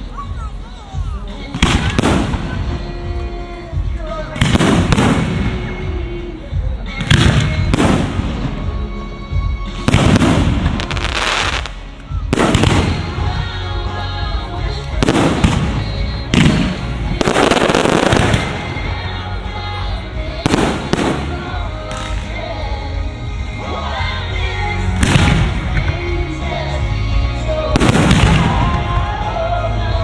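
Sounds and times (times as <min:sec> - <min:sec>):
music playing: 0:00.0 - 0:30.0.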